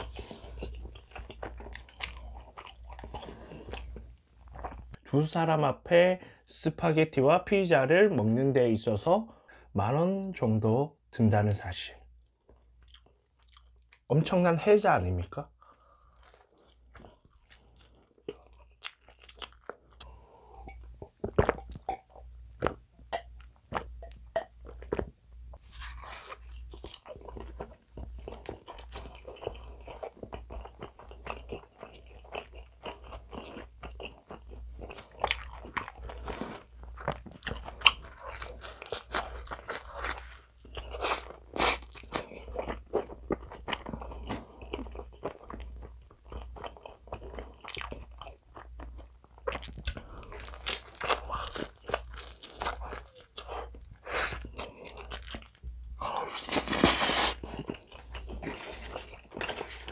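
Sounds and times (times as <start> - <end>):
chewing with crisp crunches: 0.0 - 5.0, 12.4 - 14.0, 15.7 - 59.9
gulps and mouth clicks: 20.0 - 25.1.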